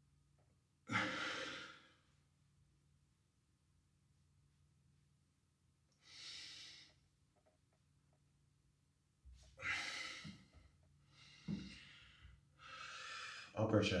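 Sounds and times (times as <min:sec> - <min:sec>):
man breathing out: 0:00.9 - 0:02.0, 0:06.0 - 0:07.0, 0:09.5 - 0:13.6.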